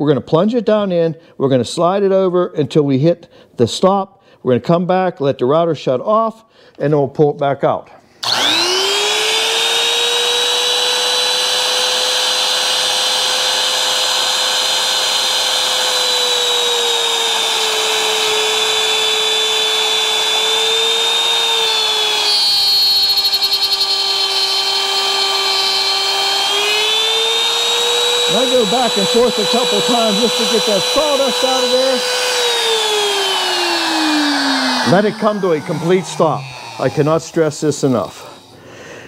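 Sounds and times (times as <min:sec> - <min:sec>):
router whining while cutting wood: 0:08.2 - 0:38.6.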